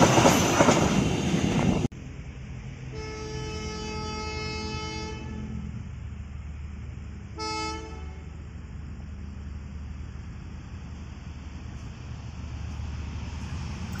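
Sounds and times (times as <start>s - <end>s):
locomotive horn blasts: 2.9s - 5.8s, 7.3s - 8.4s.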